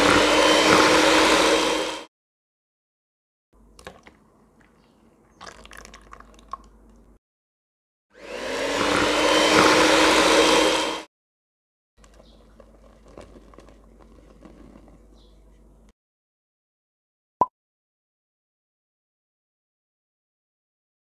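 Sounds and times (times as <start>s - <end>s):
electric hand mixer running: 0.0s - 2.1s, 8.2s - 11.1s.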